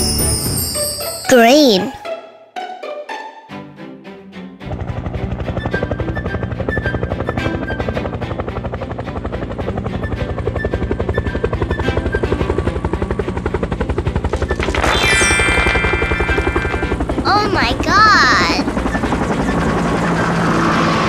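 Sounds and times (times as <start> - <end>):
cheerful background music: 0.0 - 13.0, 14.7 - 18.7
helicopter rotor chopping: 4.6 - 21.0.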